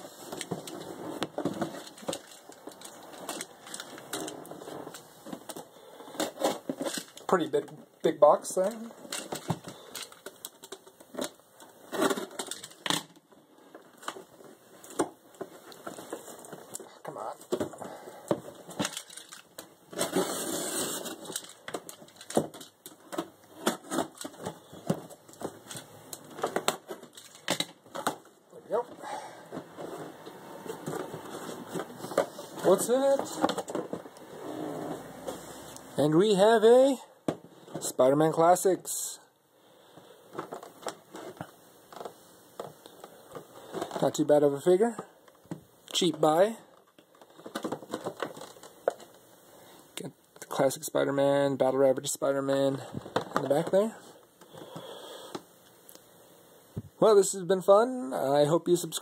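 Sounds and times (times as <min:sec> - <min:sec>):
cardboard tearing and rustling: 0:18.7 - 0:22.6.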